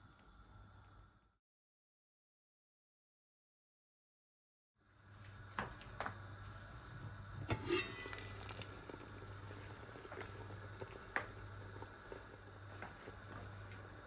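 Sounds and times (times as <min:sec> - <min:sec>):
water boiling: 0:00.0 - 0:01.4, 0:04.8 - 0:14.0
metal pot lid clattering: 0:07.5 - 0:08.6.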